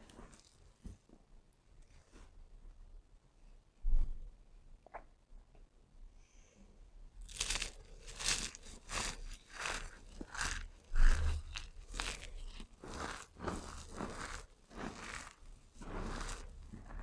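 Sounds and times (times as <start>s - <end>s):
soap shavings crunching in hands: 7.2s - 17.0s.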